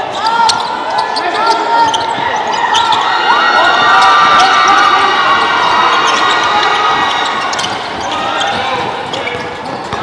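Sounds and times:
crowd noise in gym: 0:00.0 - 0:10.0
sneakers squeaking: 0:00.0 - 0:10.0
basketball dribbling on hardwood: 0:06.1 - 0:10.0.

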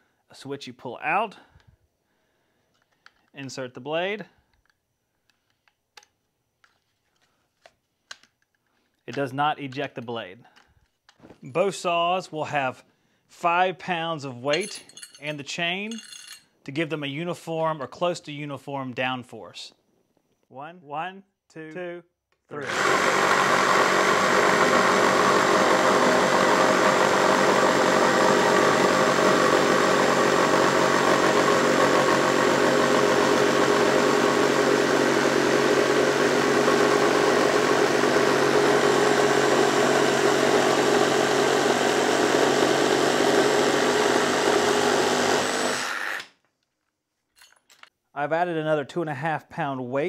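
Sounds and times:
reciprocating saws cutting wood: 0:22.6 - 0:46.3.

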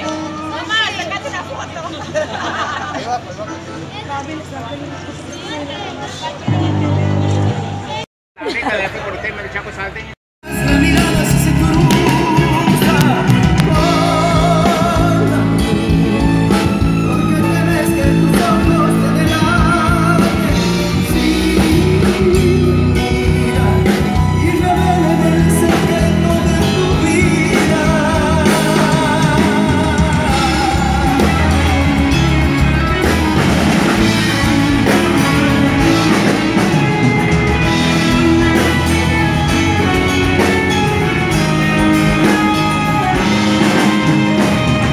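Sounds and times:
live band playing through pa: 0:00.0 - 0:44.9
lead voice singing: 0:10.4 - 0:44.9.

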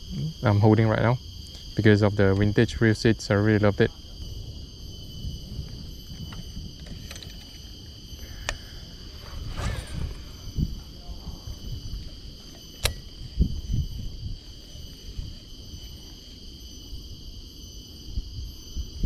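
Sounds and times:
high-pitched insect chorus: 0:00.0 - 0:19.0
wind rumble: 0:00.7 - 0:19.0
handling noise: 0:05.6 - 0:16.1
sharp click: 0:12.7 - 0:13.1.

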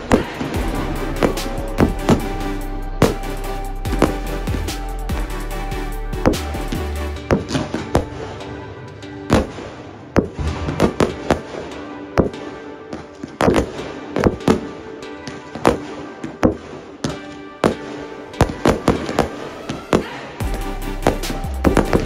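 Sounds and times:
fireworks bursting with sharp bangs: 0:00.0 - 0:05.4, 0:09.3 - 0:22.0
music playing: 0:00.0 - 0:22.0.

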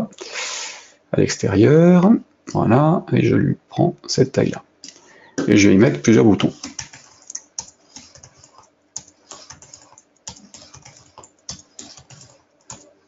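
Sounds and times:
computer keyboard keystrokes: 0:06.4 - 0:12.9
computer mouse clicks: 0:06.6 - 0:12.9.

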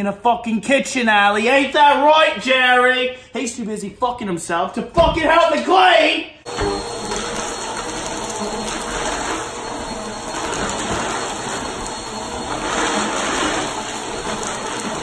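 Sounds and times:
vacuum cleaner running on carpet: 0:06.5 - 0:15.0.

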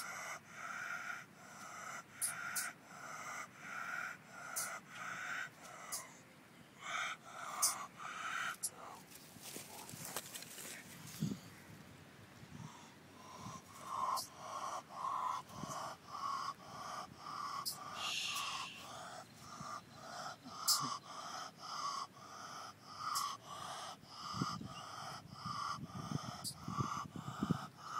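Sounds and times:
baby opossum sneeze-like calls: 0:17.4 - 0:19.2, 0:20.5 - 0:21.0.

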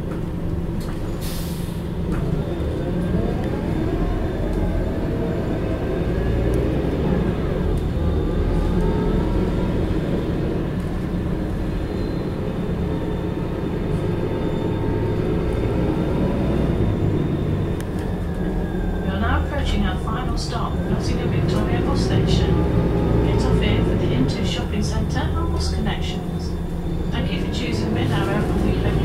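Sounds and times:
bus engine running: 0:00.0 - 0:29.0.

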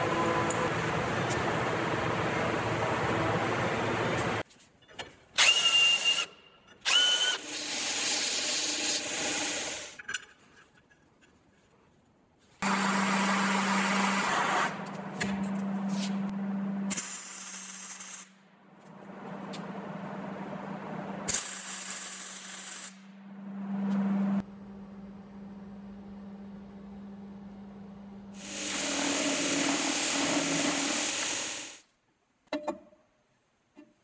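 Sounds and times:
drill cutting into steel: 0:05.4 - 0:10.0
torch hissing: 0:28.4 - 0:31.8.

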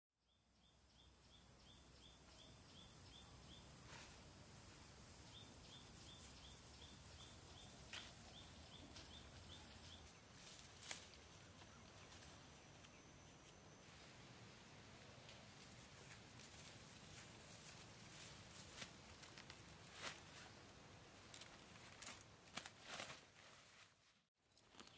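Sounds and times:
high insect drone: 0:00.9 - 0:11.0.

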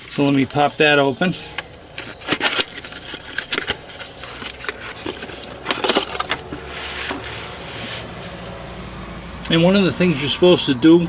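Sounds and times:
cardboard box crackling and rustling: 0:02.1 - 0:08.6.

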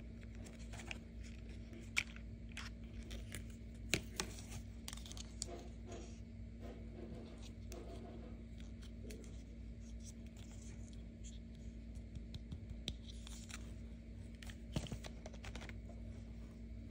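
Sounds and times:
steady low hum: 0:00.0 - 0:16.9
plastic figures rustling: 0:13.1 - 0:16.0.

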